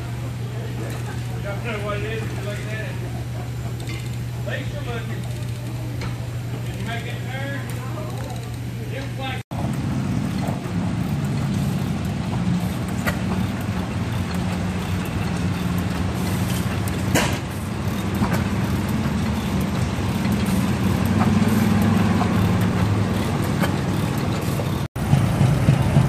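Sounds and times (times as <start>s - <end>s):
stationary engine drone: 0.0s - 26.0s
engine pops: 9.0s - 26.0s.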